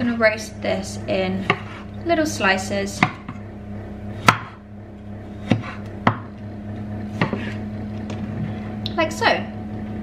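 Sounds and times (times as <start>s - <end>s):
knife knocking on chopping board: 5.5s - 6.3s.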